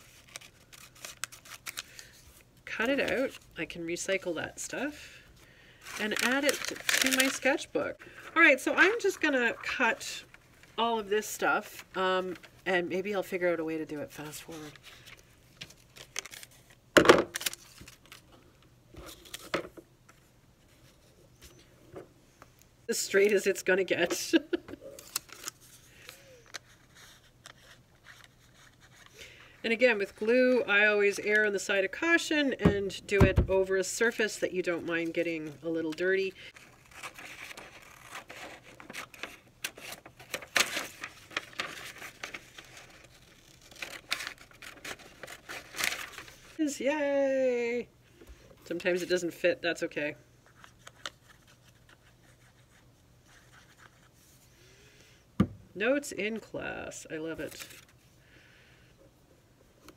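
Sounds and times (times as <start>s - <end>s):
paper rustling on desk: 5.8s - 10.0s, 36.6s - 46.6s.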